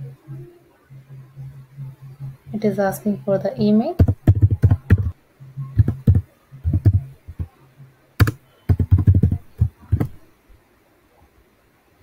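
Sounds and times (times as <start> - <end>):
typing on a keyboard: 4.0 - 5.1, 5.8 - 7.5, 8.2 - 10.2.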